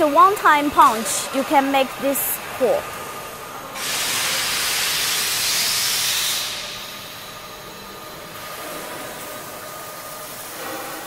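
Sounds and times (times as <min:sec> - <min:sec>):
loud hiss of punching station: 0:03.8 - 0:07.3.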